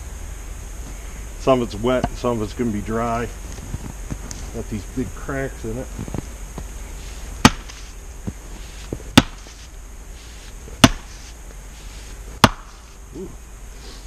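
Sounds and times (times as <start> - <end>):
axe chopping firewood: 7.4 - 7.9, 8.9 - 9.6, 10.8 - 11.3, 12.4 - 12.8.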